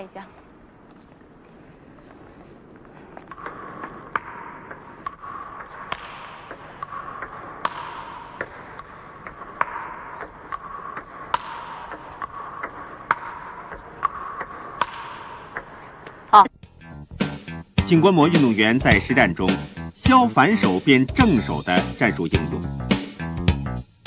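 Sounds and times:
table tennis balls clicking: 2.2s - 16.4s.

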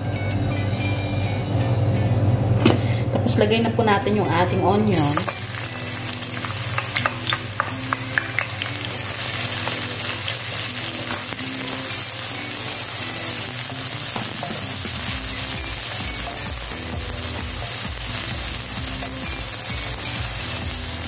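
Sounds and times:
onion sizzling in oil: 4.8s - 21.0s.

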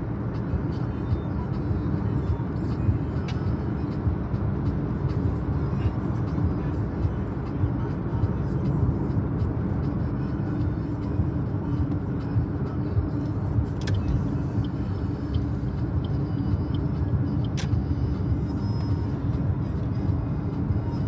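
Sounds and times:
car road and engine noise: 0.0s - 21.0s.

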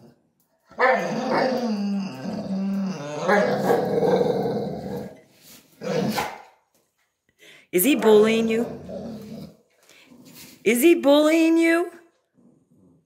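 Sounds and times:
dog growling: 0.7s - 5.2s, 5.8s - 6.3s, 8.0s - 10.5s.

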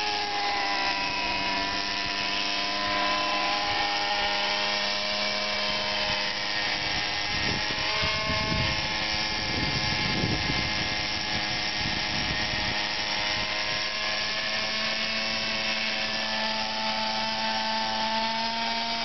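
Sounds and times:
model helicopter engine buzzing: 0.0s - 19.0s
gusty rumble: 7.0s - 12.7s.

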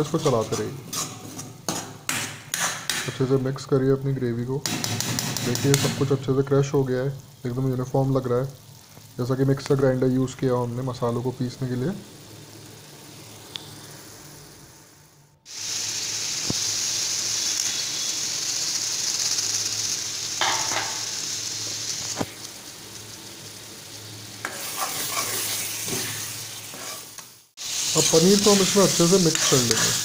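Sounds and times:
ladle scraping pan: 0.0s - 2.0s, 24.4s - 27.2s, 29.3s - 30.0s
food sizzling in oil: 0.0s - 30.0s.

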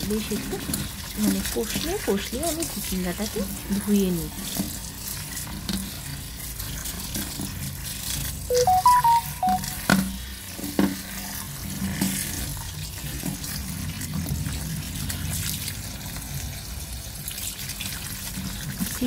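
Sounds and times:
tap water running: 0.0s - 8.4s, 10.7s - 19.0s
short chime notes: 8.5s - 9.8s.

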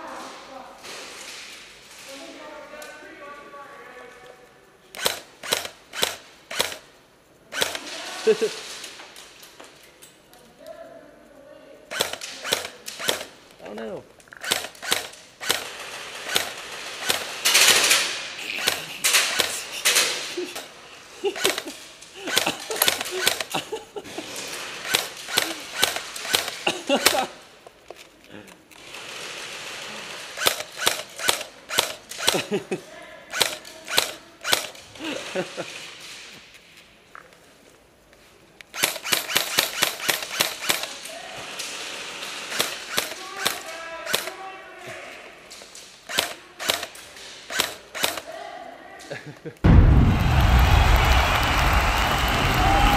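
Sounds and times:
airsoft guns firing: 5.0s - 6.9s, 7.5s - 9.0s, 11.9s - 13.4s, 14.4s - 20.7s, 21.3s - 23.7s, 24.5s - 27.4s, 29.1s - 32.6s, 33.3s - 34.8s, 38.8s - 44.4s, 46.1s - 48.3s.

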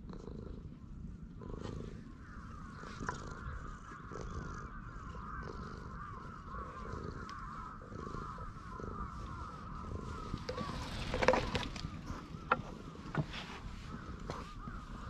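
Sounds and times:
cat purring: 0.0s - 15.0s
small birds chattering: 0.2s - 15.0s.

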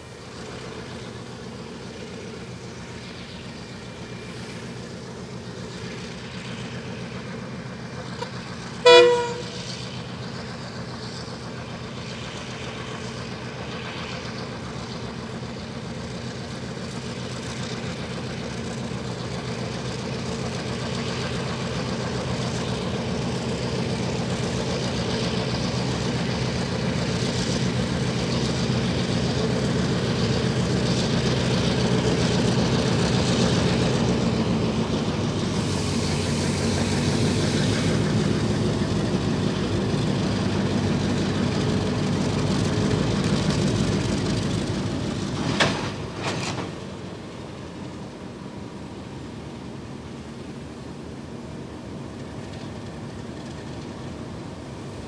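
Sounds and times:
diesel locomotive engines: 0.0s - 55.0s
locomotive horn blast: 8.0s - 10.0s.

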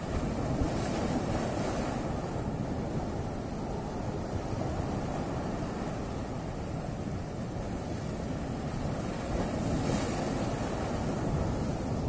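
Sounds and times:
wave splashing against rocks: 0.0s - 2.9s, 7.5s - 12.0s
waves washing on rocky shore: 0.0s - 12.0s
wind rumbling on microphone: 0.0s - 12.0s.

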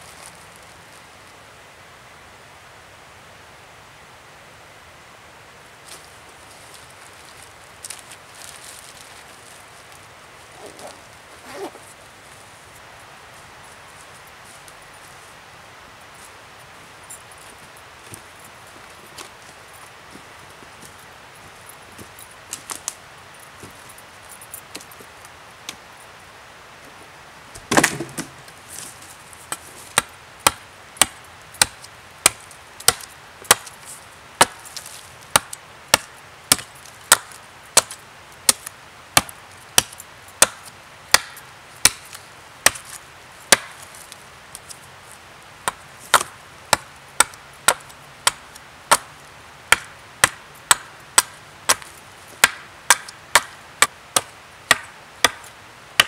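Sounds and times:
axe chopping wooden stake: 27.6s - 28.4s, 29.5s - 33.7s, 34.4s - 34.6s, 35.3s - 42.9s, 43.5s - 43.8s, 45.6s - 49.1s, 49.7s - 56.0s.

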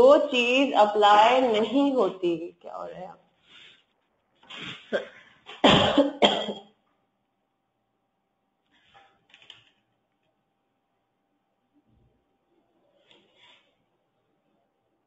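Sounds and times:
person coughing: 4.5s - 6.7s.

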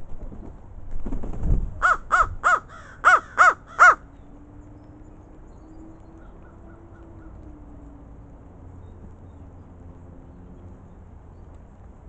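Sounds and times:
crow cawing: 1.8s - 4.0s.

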